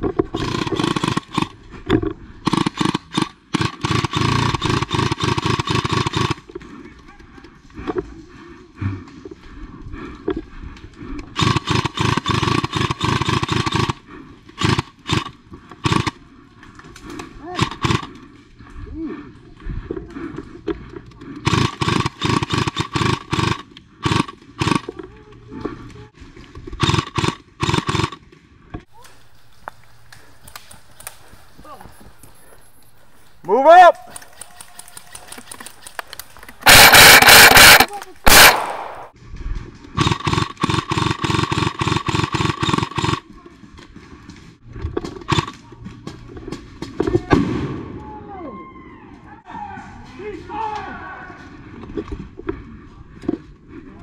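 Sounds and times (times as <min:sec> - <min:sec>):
gun firing rapid bursts: 0:00.4 - 0:01.6, 0:02.4 - 0:06.4, 0:11.4 - 0:14.0, 0:14.6 - 0:16.2, 0:17.6 - 0:18.1, 0:21.4 - 0:24.9, 0:26.8 - 0:28.2, 0:36.6 - 0:39.2, 0:40.0 - 0:43.2, 0:45.3 - 0:45.5
paintball marker shots: 0:36.6 - 0:39.2.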